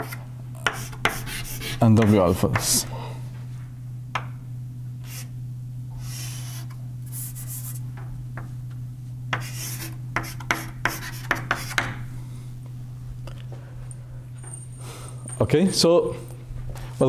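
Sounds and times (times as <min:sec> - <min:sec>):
scratchy writing on a board: 0:00.0 - 0:02.2, 0:05.0 - 0:05.3, 0:06.0 - 0:07.8, 0:09.3 - 0:11.9
steady low hum: 0:00.0 - 0:17.0.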